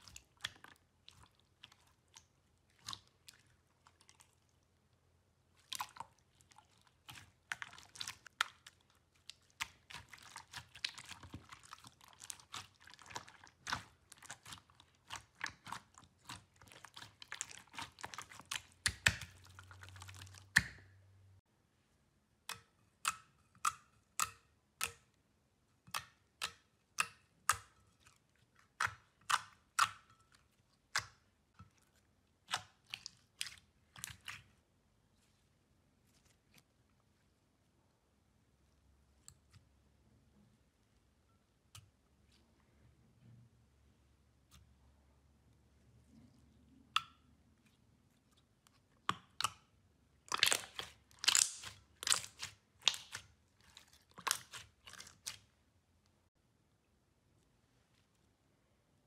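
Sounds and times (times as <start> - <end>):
slime squeezed wet pops: 50.3 - 53.2.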